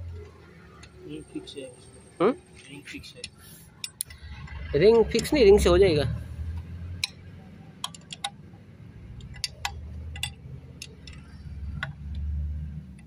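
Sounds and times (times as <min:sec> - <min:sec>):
socket wrench clicking: 0:07.8 - 0:08.4, 0:09.2 - 0:12.3.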